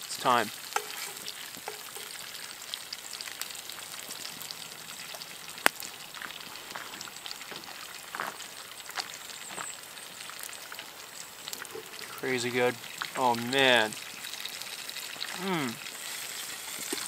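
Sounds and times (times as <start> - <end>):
fish sizzling in a frying pan: 0.0 - 17.0
small pops and crackles: 5.0 - 12.3, 13.9 - 17.0.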